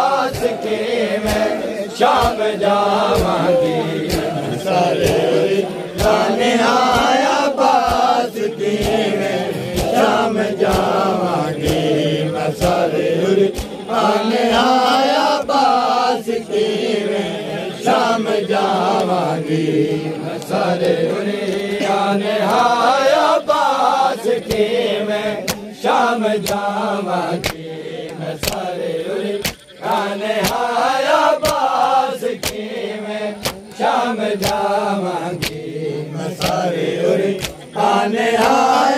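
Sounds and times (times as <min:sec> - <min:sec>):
hands slapping chests: 0:00.0 - 0:15.7, 0:18.8 - 0:19.4, 0:20.3 - 0:22.8, 0:24.4 - 0:24.8, 0:25.4 - 0:25.8, 0:26.4 - 0:26.8, 0:27.4 - 0:28.8, 0:29.4 - 0:38.9
men chanting in unison: 0:00.0 - 0:38.9.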